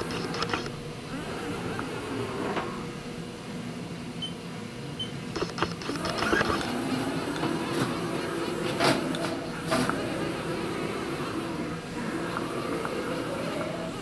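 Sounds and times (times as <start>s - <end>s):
machine hum: 0.0s - 14.0s
sharp clicks: 5.4s - 6.7s.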